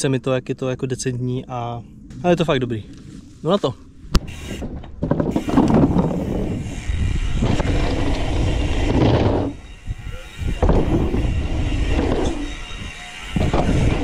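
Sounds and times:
bicycle freehub ratchet clicking: 4.3s - 4.6s
tyres rolling on dirt: 7.4s - 9.6s.

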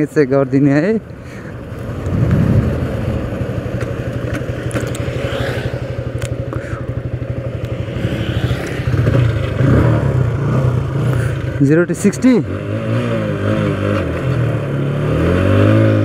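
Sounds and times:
motorcycle engine idling: 0.4s - 12.0s.

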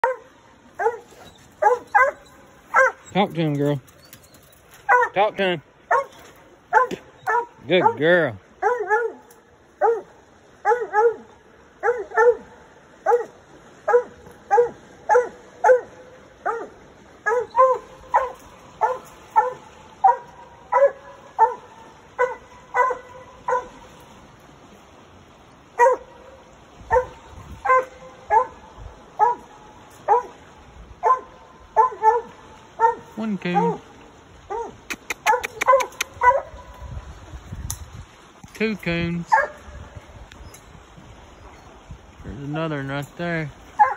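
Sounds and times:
dog barking: 0.0s - 3.1s, 4.8s - 5.2s, 5.9s - 23.8s, 25.8s - 26.1s, 26.9s - 28.6s, 29.2s - 29.5s, 30.1s - 30.4s, 31.0s - 33.8s, 34.5s - 36.6s, 39.3s - 39.6s.

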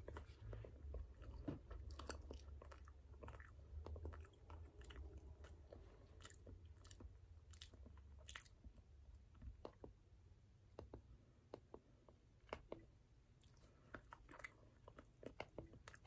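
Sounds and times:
person chewing: 0.0s - 8.7s, 10.7s - 16.0s.

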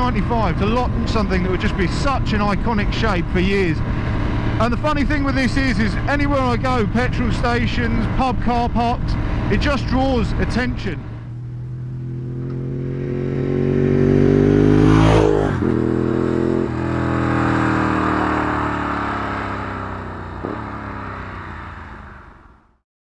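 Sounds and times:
motorcycle passing by: 11.1s - 22.6s.

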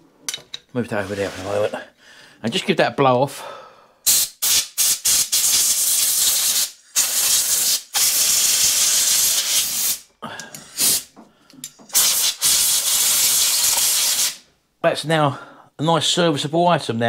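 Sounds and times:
compressed air hissing bursts: 4.0s - 10.1s, 10.7s - 11.2s, 11.9s - 14.4s.

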